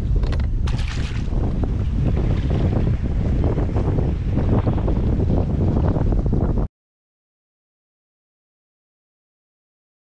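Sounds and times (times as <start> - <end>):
wind buffeting microphone: 0.0 - 6.7.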